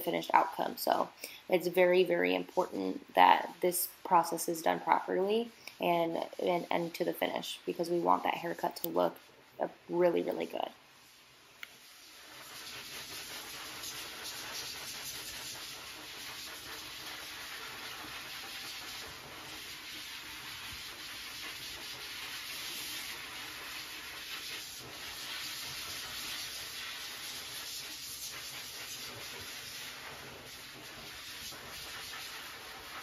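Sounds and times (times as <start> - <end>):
dog grooming dryer blowing: 12.0 - 33.0.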